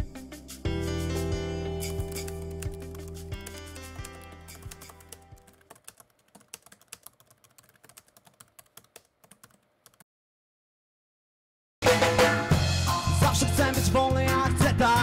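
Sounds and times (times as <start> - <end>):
background music: 0.0 - 5.7, 11.8 - 15.0
keyboard typing: 1.8 - 10.0
loud band music: 11.8 - 14.8.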